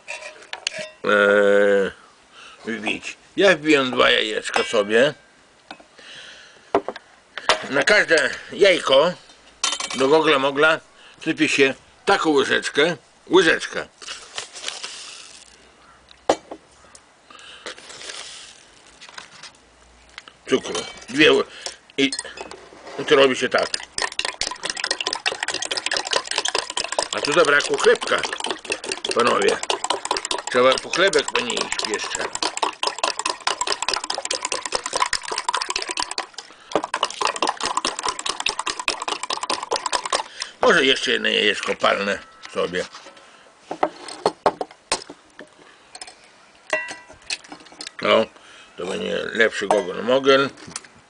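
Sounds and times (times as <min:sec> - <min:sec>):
paper bag rustling: 0:14.0 - 0:15.6
sugar grains hissing: 0:14.0 - 0:15.6, 0:17.8 - 0:19.0
spoon clinking against glass: 0:23.6 - 0:32.7, 0:46.7 - 0:47.2.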